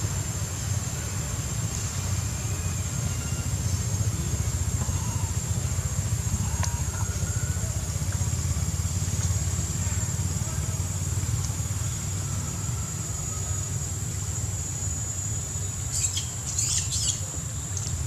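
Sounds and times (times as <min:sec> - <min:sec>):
high-pitched whine: 0:00.0 - 0:18.0
faint ticks: 0:09.0 - 0:09.4, 0:17.7 - 0:18.0.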